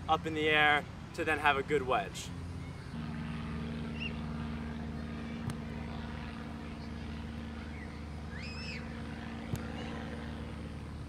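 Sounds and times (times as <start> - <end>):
low motor drone: 0.0 - 11.0
soccer ball knocks: 9.5 - 9.7.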